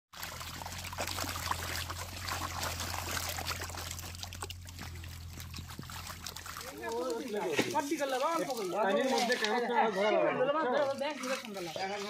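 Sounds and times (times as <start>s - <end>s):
fish splashing in water: 0.1s - 9.8s, 10.8s - 12.0s
low hum: 0.2s - 6.8s.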